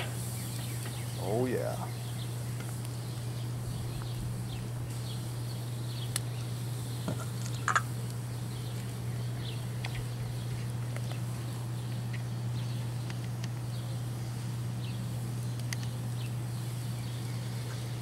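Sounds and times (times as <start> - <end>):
meat sizzling on grill: 0.0 - 12.1
fire popping: 0.0 - 18.0.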